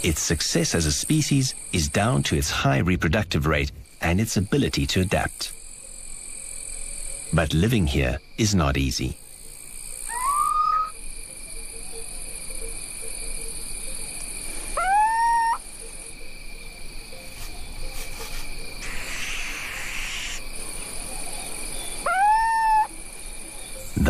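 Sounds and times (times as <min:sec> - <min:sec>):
crickets chirping: 0:00.0 - 0:24.0
owl hooting: 0:10.0 - 0:11.0, 0:14.5 - 0:16.0, 0:18.8 - 0:23.0.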